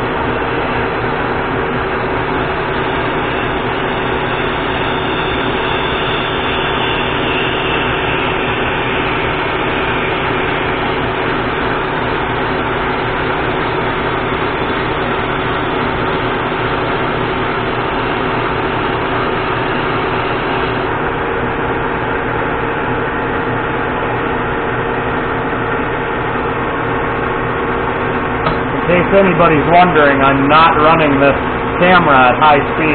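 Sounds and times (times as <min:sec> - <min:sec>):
lathe running: 0:00.0 - 0:32.9.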